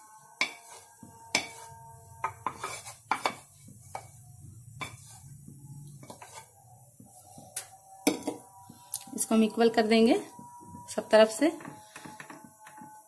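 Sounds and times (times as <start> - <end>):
spatula scraping pan: 0.3 - 10.3.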